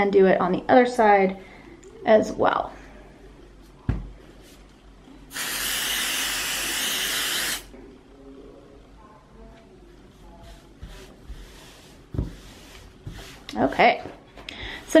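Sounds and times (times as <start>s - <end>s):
aerosol spray hissing: 5.3s - 7.7s.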